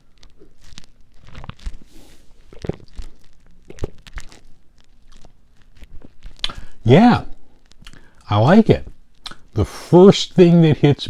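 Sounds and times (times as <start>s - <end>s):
person sipping and swallowing: 1.2s - 8.2s
mouth clicks: 2.5s - 4.4s, 5.1s - 6.8s, 7.7s - 8.3s, 9.2s - 9.6s.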